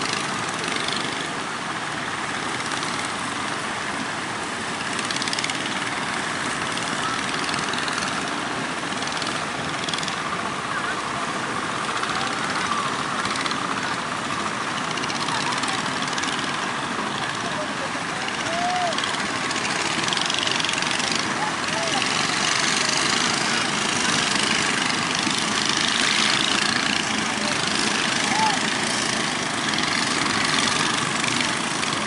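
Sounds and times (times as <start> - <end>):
surf waves breaking: 0.0 - 32.0.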